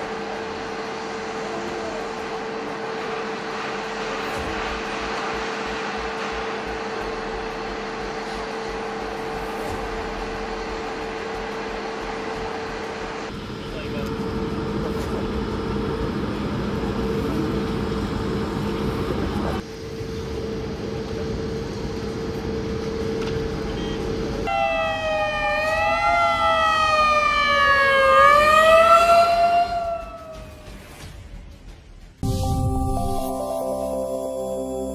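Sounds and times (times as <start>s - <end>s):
emergency siren wailing: 24.5s - 30.8s.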